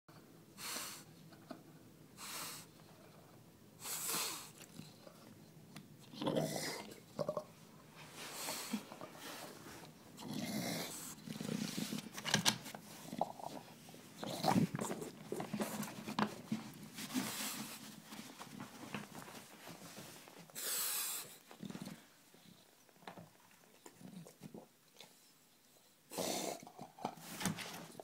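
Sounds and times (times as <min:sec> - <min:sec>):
dog growling in rough bursts: 0:10.2 - 0:11.8.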